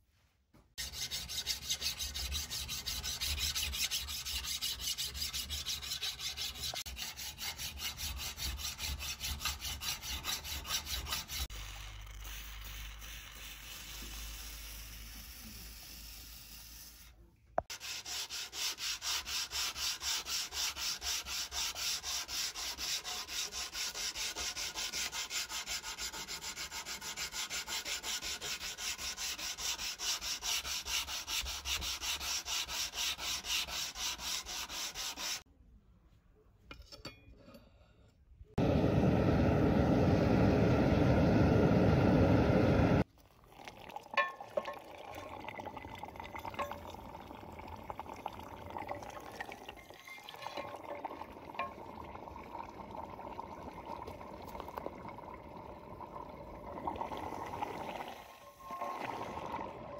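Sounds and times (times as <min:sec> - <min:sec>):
sharpening stone scraping steel: 0:00.8 - 0:17.1.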